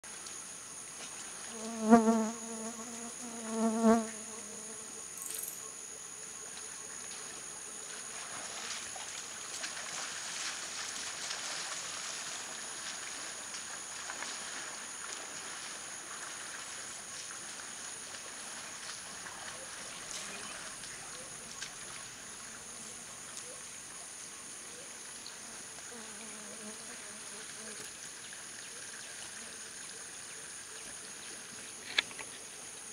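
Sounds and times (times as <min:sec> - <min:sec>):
insects chorus: 0:00.1 - 0:32.9
elephants splashing in water: 0:07.9 - 0:22.6.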